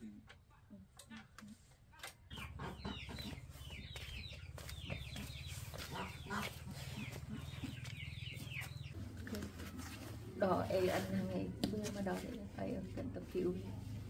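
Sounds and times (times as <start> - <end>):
chickens calling: 2.3 - 11.2.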